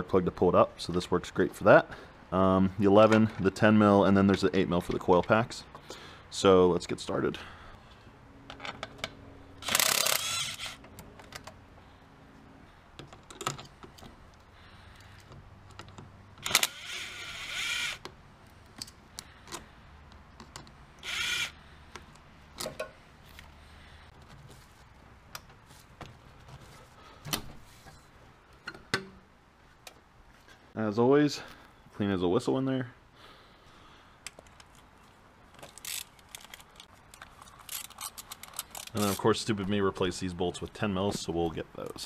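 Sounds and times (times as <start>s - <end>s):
impact wrench bursts: 9.6s - 10.9s, 16.4s - 18.0s, 21.0s - 21.6s.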